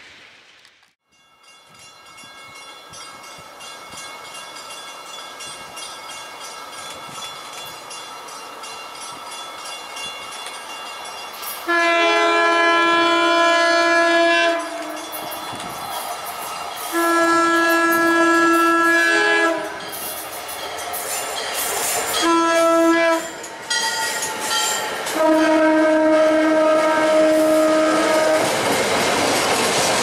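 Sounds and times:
approaching train tone: 0:00.0 - 0:30.0
train air horn chord: 0:11.6 - 0:15.2, 0:16.9 - 0:19.8, 0:22.2 - 0:23.4, 0:25.1 - 0:28.5.

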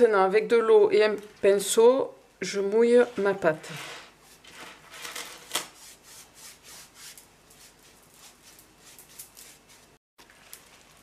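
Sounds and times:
pastry brush brushing dough: 0:05.7 - 0:10.0.

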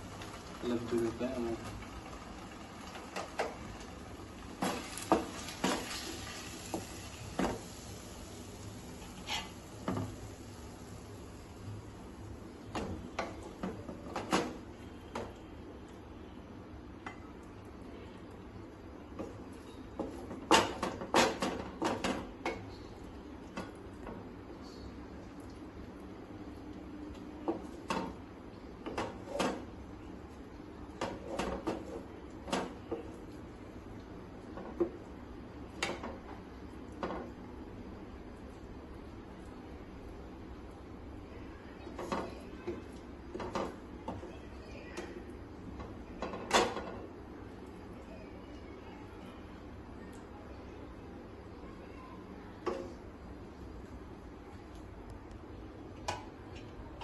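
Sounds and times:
spatula scraping frying pan: 0:09.0 - 0:09.8.

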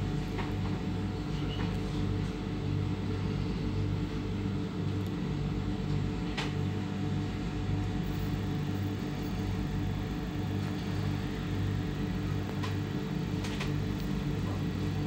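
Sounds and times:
electric train hum: 0:07.2 - 0:15.0.

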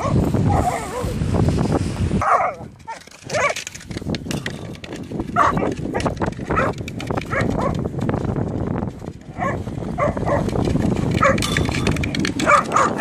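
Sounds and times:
dogs barking and yipping: 0:00.0 - 0:01.2, 0:02.2 - 0:03.8, 0:05.2 - 0:07.9, 0:09.3 - 0:13.0.

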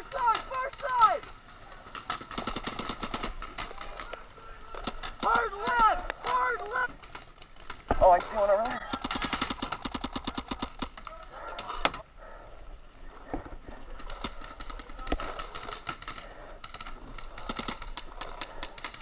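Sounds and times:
paintball markers firing: 0:02.0 - 0:04.2, 0:04.8 - 0:06.5, 0:07.1 - 0:11.1, 0:13.9 - 0:19.0.

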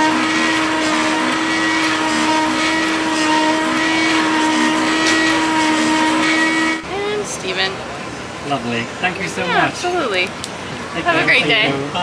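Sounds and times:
engraving spindle motor whine: 0:00.0 - 0:07.5.

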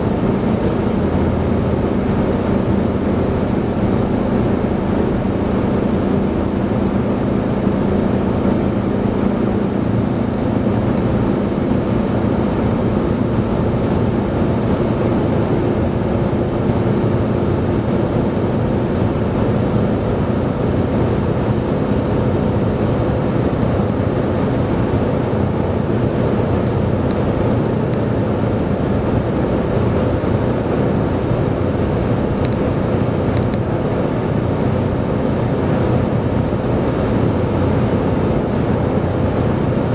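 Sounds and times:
car road and engine noise: 0:00.0 - 0:39.9.

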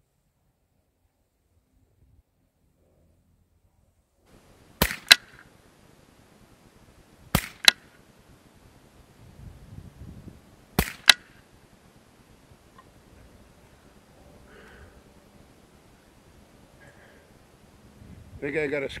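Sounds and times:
rifle shots cracking: 0:04.8 - 0:05.5, 0:07.3 - 0:08.0, 0:10.8 - 0:11.4.

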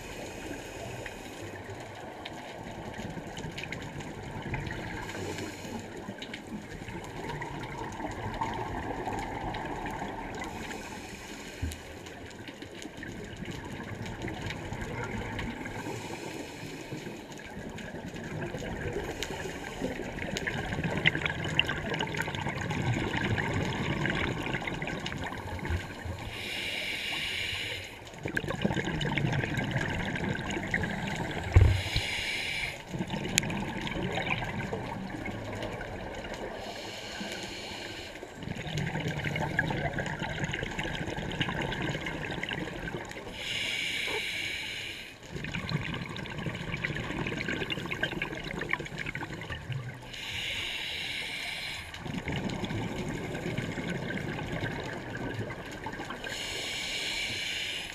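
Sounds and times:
regulator hissing inhale: 0:00.0 - 0:01.6, 0:04.9 - 0:06.1, 0:10.5 - 0:12.0, 0:15.8 - 0:17.3, 0:19.0 - 0:20.1, 0:26.1 - 0:28.1, 0:31.5 - 0:32.9, 0:36.6 - 0:38.4, 0:43.3 - 0:45.2, 0:50.1 - 0:52.0, 0:56.2 - 0:57.9
bubbling exhale: 0:18.8 - 0:34.8.

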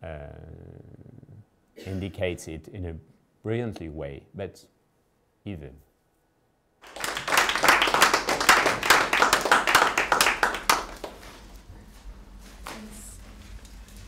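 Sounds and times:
audience applauding: 0:06.8 - 0:11.4.

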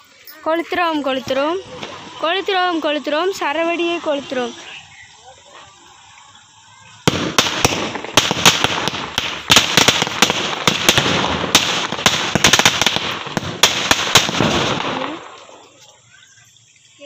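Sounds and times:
firecracker chain bangs and crackles: 0:06.9 - 0:17.0.

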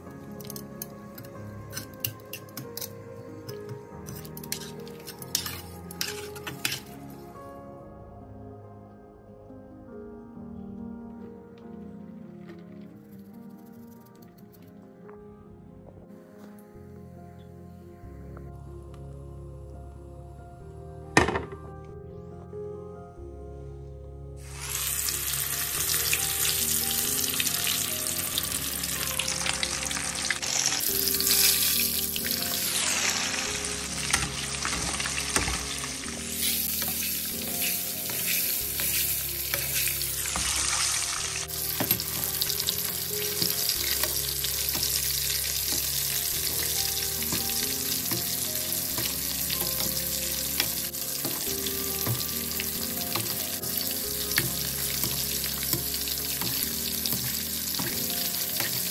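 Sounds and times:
fish deep-frying in oil: 0:24.4 - 0:58.9.

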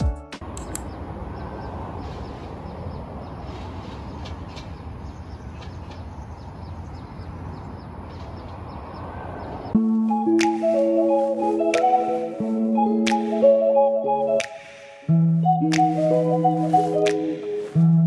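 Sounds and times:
bus road and engine noise: 0:00.3 - 0:14.8.

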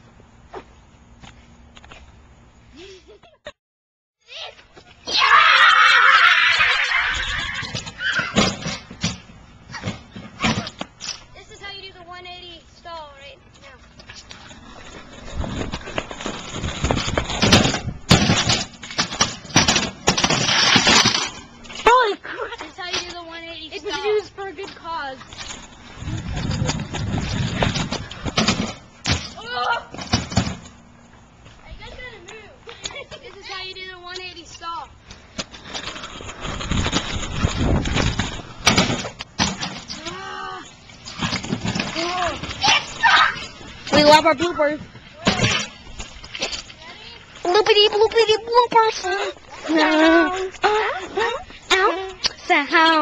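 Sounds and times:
kick scooter clattering on ramp: 0:07.6 - 0:10.9, 0:15.2 - 0:21.4, 0:22.7 - 0:30.7, 0:35.4 - 0:40.2, 0:41.1 - 0:44.6, 0:45.2 - 0:45.8
scooter scraping on ramp: 0:13.6 - 0:29.4, 0:34.7 - 0:52.0.

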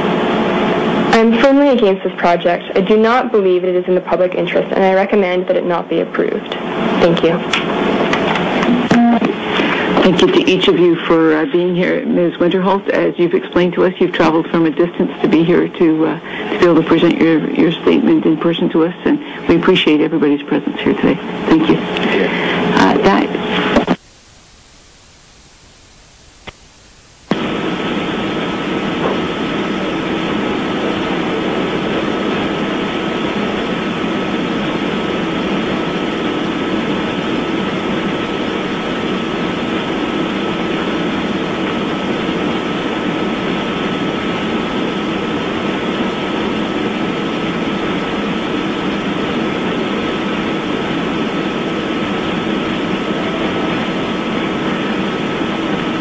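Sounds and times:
loud electronic hiss: 0:23.5 - 0:56.0.

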